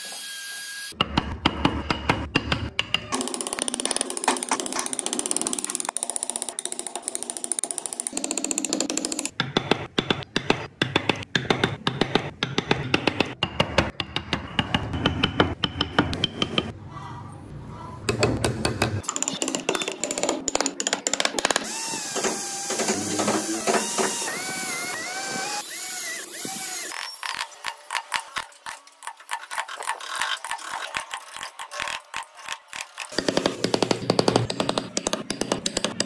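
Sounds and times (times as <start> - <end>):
electric drill boring wood: 21.5 - 28.4.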